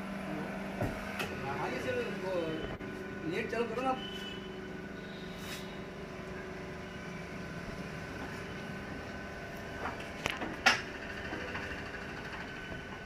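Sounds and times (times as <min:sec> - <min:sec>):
baler motor and pump humming: 0:00.0 - 0:13.0.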